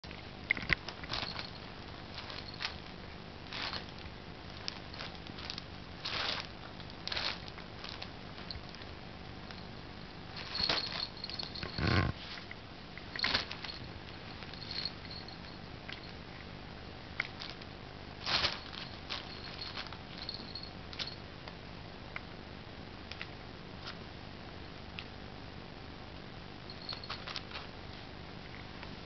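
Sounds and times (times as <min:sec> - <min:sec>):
kitten rustling a nylon tunnel: 0:00.9 - 0:08.6, 0:10.3 - 0:12.5, 0:13.1 - 0:15.3, 0:18.2 - 0:20.6
collar bell jingling: 0:10.4 - 0:12.0, 0:13.2 - 0:16.1, 0:18.6 - 0:21.2, 0:26.7 - 0:27.3.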